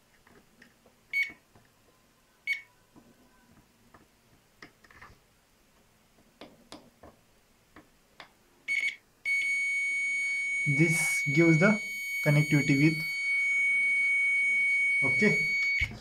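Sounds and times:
multimeter beeps: 0:01.1 - 0:01.4, 0:08.7 - 0:16.0.

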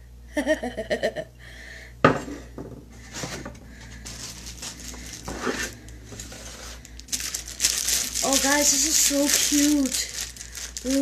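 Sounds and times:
rustling and scraping cardboard: 0:03.1 - 0:09.2.

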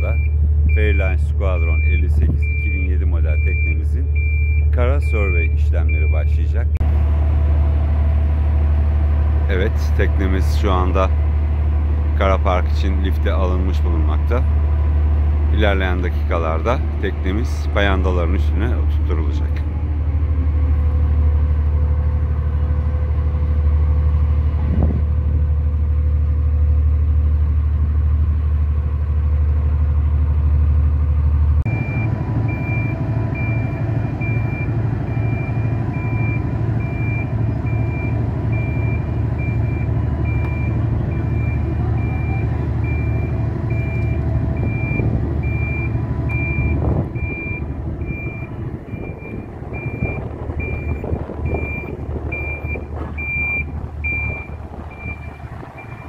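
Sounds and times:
warning alarm beeping: 0:00.0 - 0:06.4, 0:31.7 - 0:56.0
engine running under load: 0:00.0 - 0:56.0.

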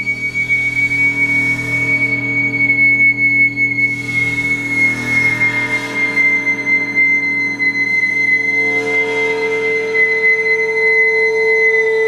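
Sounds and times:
gongs and singing bowls drone: 0:00.0 - 0:12.0
flute holding high note: 0:03.7 - 0:12.0.

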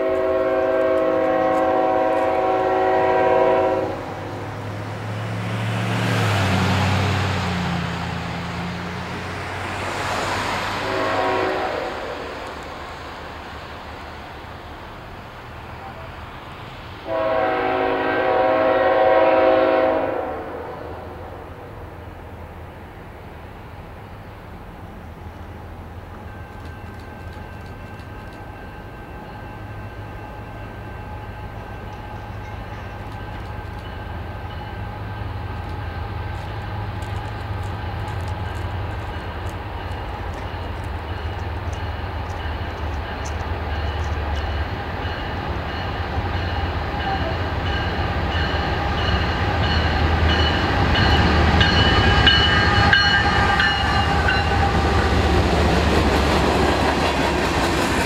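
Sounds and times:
locomotive low rumble: 0:21.0 - 0:58.0.

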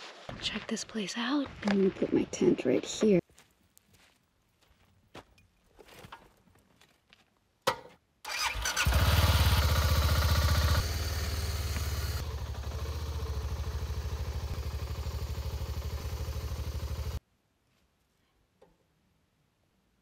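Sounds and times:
motorcycle engine running: 0:08.4 - 0:17.2.

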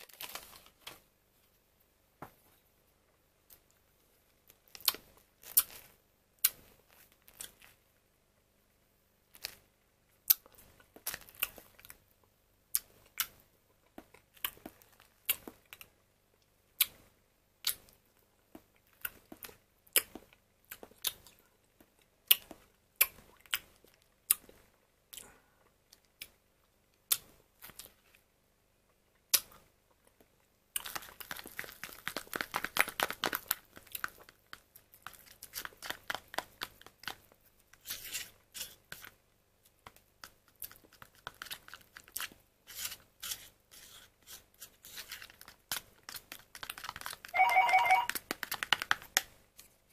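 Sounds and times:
spoon scraping while stirring: 0:37.8 - 0:39.1.

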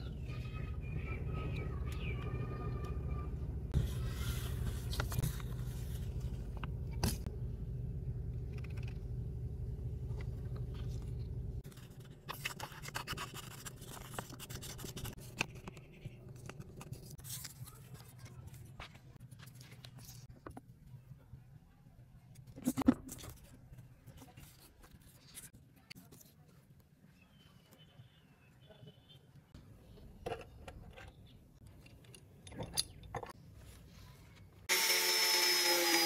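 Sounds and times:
steady low hum: 0:00.0 - 0:11.9
paper rustling: 0:03.8 - 0:06.4.

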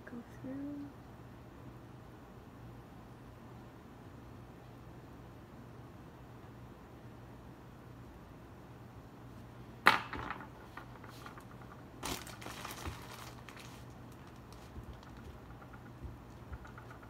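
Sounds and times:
plastic bag crinkling: 0:10.9 - 0:17.0.

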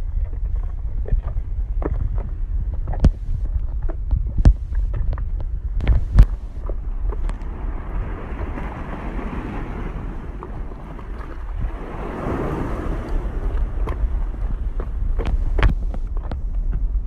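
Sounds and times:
footsteps on rough rock: 0:00.0 - 0:07.5, 0:13.7 - 0:17.0
wind buffeting microphone: 0:00.0 - 0:17.0.

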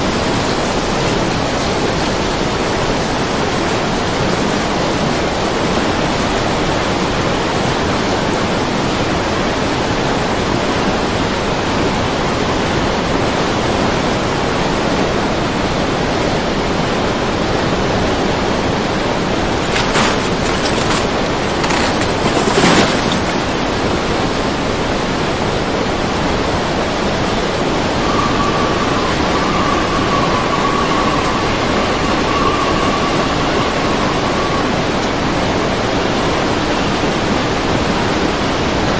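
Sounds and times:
floodwater rushing: 0:19.3 - 0:24.0.

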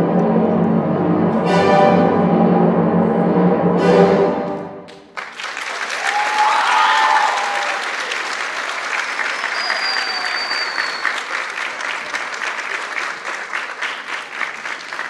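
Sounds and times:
orchestral music: 0:00.0 - 0:05.1
audience applause: 0:04.9 - 0:15.0
high sustained whistle: 0:09.4 - 0:11.2.

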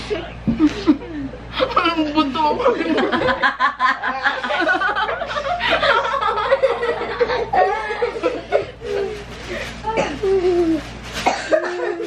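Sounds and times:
people laughing: 0:00.1 - 0:09.2.

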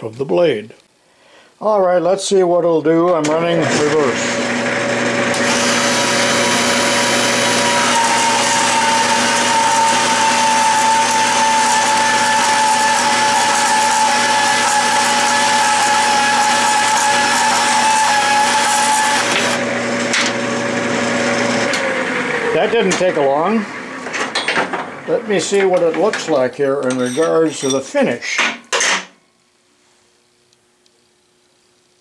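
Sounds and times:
lathe humming: 0:03.4 - 0:24.3
band saw cutting steel rod: 0:05.3 - 0:19.6.

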